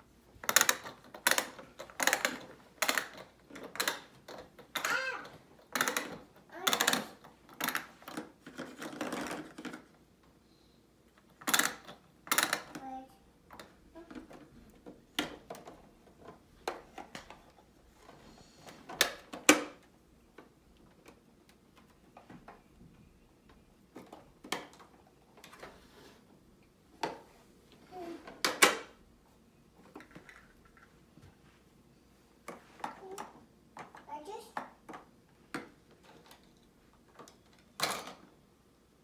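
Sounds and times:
plastic toy pots clicking and knocking: 0:00.4 - 0:10.0, 0:11.1 - 0:17.6, 0:23.9 - 0:25.6, 0:29.8 - 0:30.9, 0:32.4 - 0:38.4.

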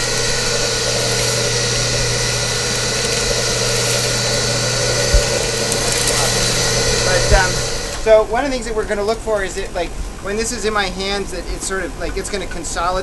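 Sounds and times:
concrete mixer running: 0:00.0 - 0:09.8.

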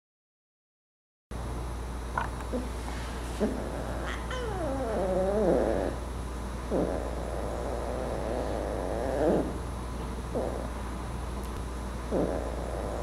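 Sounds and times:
steady low hum: 0:01.4 - 0:13.0
cat meowing: 0:04.0 - 0:05.6.

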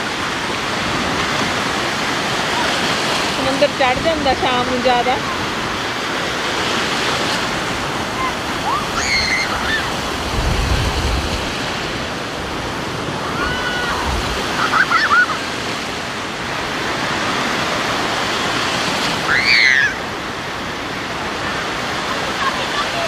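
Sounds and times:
sea surf breaking: 0:00.0 - 0:23.0
high voices crying out: 0:08.2 - 0:10.0.

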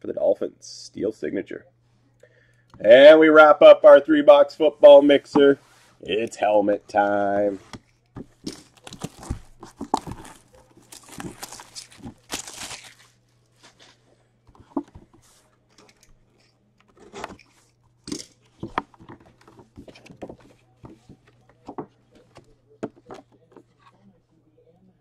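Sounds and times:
plastic shrink wrap crinkling: 0:07.9 - 0:14.0.

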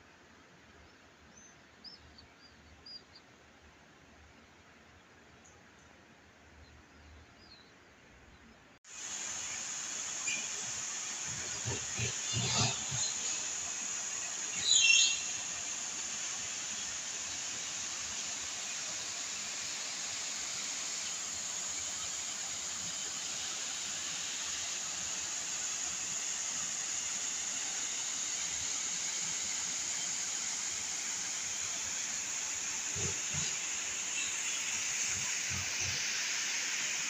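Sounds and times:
fountain water rushing: 0:08.9 - 0:37.0.

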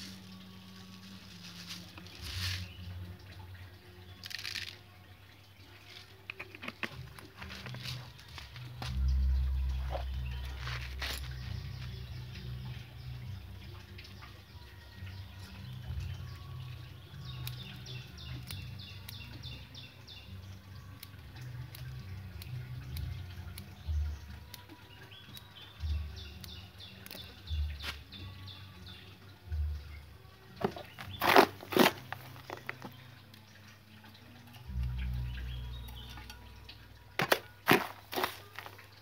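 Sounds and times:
scrapes and clicks of roots: 0:00.9 - 0:02.8, 0:04.2 - 0:04.8, 0:05.8 - 0:12.1, 0:30.6 - 0:33.0, 0:37.2 - 0:39.0
small birds chirping: 0:02.0 - 0:39.0.

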